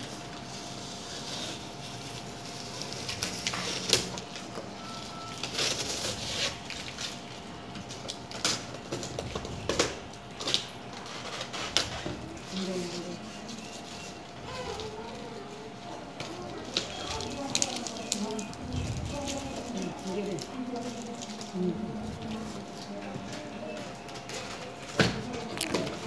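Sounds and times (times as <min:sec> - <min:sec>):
packing tape peeling: 0:00.0 - 0:04.6, 0:05.3 - 0:12.6, 0:16.3 - 0:21.6
cardboard scraping and rustling: 0:05.4 - 0:07.3.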